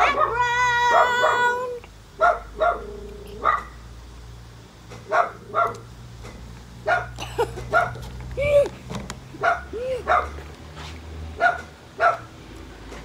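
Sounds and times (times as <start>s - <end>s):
dog barking and yipping: 0.0s - 3.8s, 5.1s - 5.9s, 6.8s - 8.0s, 9.4s - 10.4s, 11.4s - 12.3s.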